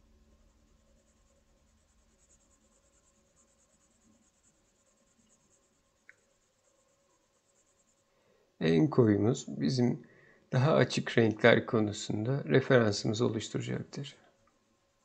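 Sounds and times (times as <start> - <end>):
pencil scratching on paper: 0.7 - 8.1.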